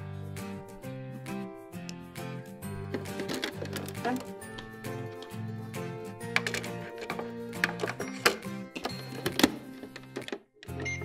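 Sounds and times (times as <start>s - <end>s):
background music: 0.0s - 11.0s
plastic toy clicks and knocks: 2.9s - 4.3s, 6.3s - 10.4s.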